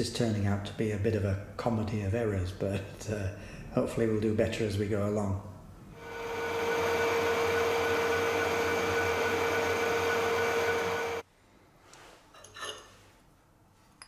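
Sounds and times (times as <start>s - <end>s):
metal lathe whining: 6.0s - 11.2s.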